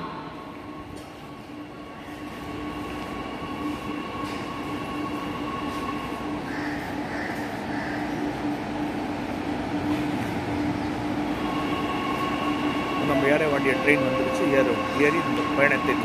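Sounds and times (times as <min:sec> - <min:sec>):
electric train whine: 0:00.0 - 0:16.0.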